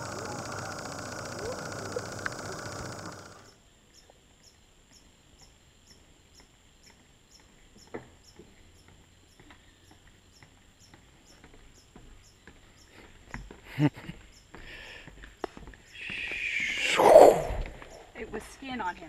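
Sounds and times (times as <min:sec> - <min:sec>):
faint clicks: 0:00.0 - 0:03.6
insect chirping: 0:00.0 - 0:18.7.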